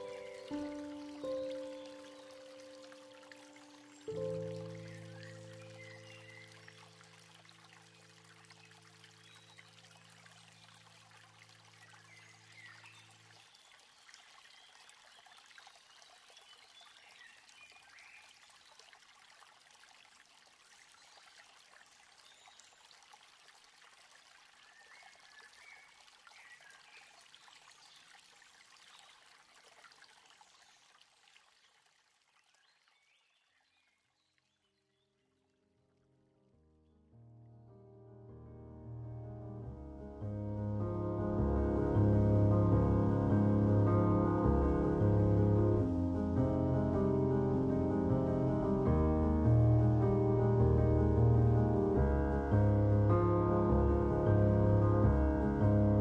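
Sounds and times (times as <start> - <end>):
faint trickling water: 0.0 - 36.0, 37.7 - 56.0
held low music notes: 37.4 - 56.0.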